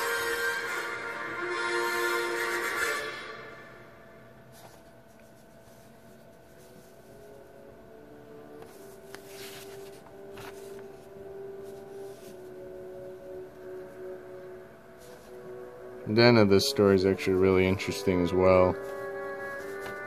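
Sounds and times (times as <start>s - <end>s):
faint background music: 0.0s - 20.0s
comic book pages turning: 4.5s - 7.4s, 8.5s - 12.6s, 18.7s - 20.0s
paper rustles: 4.5s - 7.4s, 8.6s - 12.6s, 18.7s - 20.0s.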